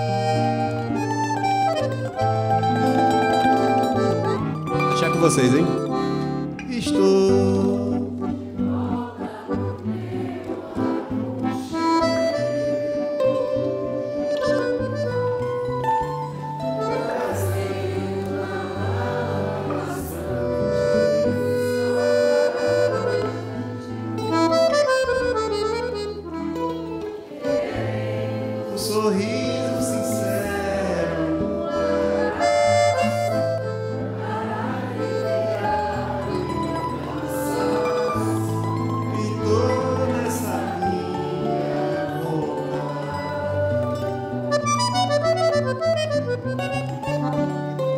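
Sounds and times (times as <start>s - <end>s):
accordion chords: 0.0s - 47.9s
acoustic guitar: 0.0s - 47.9s
mandolin: 0.0s - 47.9s.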